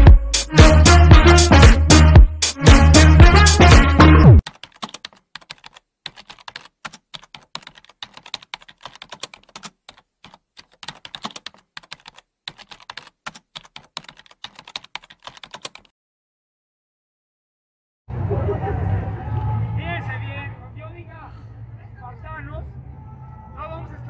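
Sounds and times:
keyboard typing clicks: 4.4 - 15.9.

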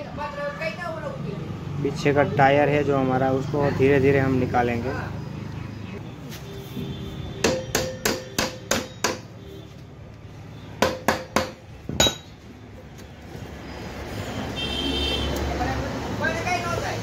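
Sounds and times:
hammer striking metal: 7.4 - 9.3, 10.8 - 12.4.

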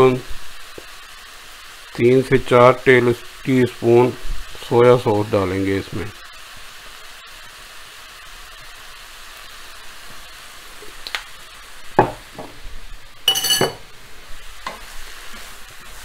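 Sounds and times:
vegetables sizzling in a pan: 0.0 - 16.0
ringing metal clink: 13.3 - 13.8.

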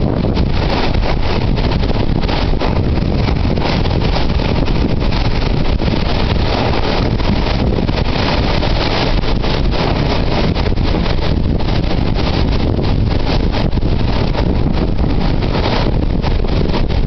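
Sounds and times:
surf breaking against rocks: 0.0 - 17.0
wind buffeting microphone: 0.0 - 17.0.

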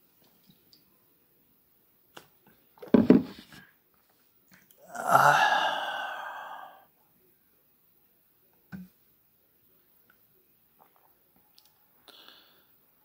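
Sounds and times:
man's low vocal sound: 4.8 - 6.8
breathy exhale: 4.8 - 6.9.

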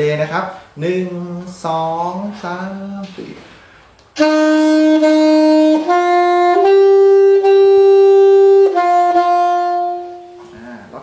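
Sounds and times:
alto saxophone playing: 4.1 - 11.0.

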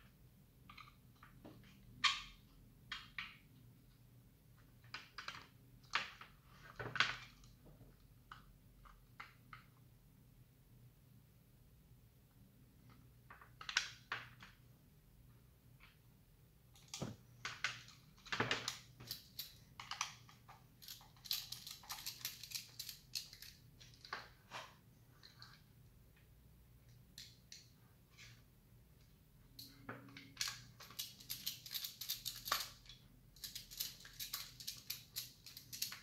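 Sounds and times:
screwdriver clicking and scraping plastic: 16.8 - 24.2, 30.1 - 36.0.

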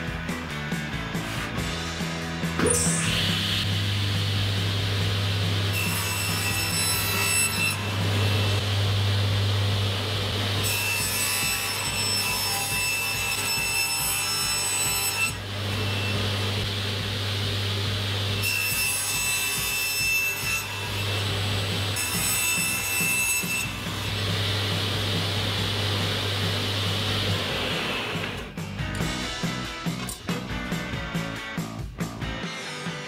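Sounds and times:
table saw motor hum: 2.6 - 12.4, 15.4 - 18.6, 20.7 - 28.5
saw blade whining through board: 2.6 - 30.1.

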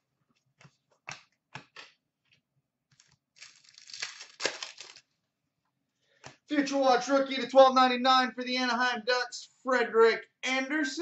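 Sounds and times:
card pack wrapper crinkling: 3.0 - 5.1.

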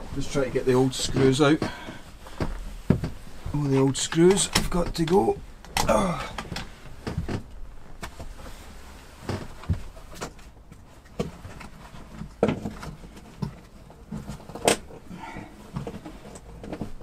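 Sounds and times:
knocks and clicks of hand tools: 1.0 - 3.2, 11.1 - 17.0.

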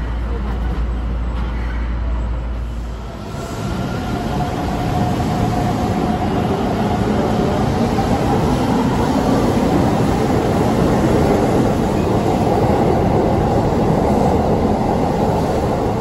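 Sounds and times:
low hum inside train cab: 0.0 - 6.6
train wheels rumbling on rails: 0.0 - 16.0.

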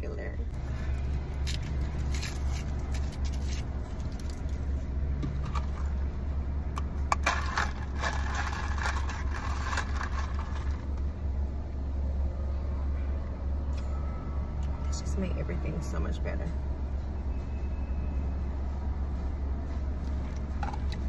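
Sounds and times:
low car hum: 0.0 - 21.0
paper wrapper crinkling: 7.2 - 11.0.

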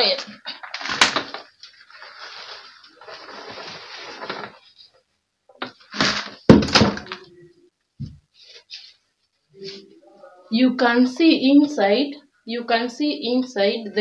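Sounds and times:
plastic bucket knocks and thump: 5.6 - 7.2.

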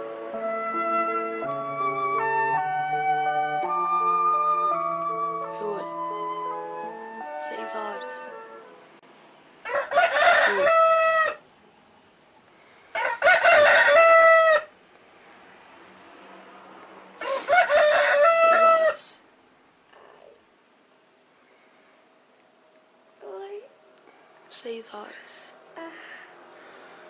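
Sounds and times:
rooster crowing: 9.6 - 11.4, 12.9 - 14.7, 17.2 - 19.2.

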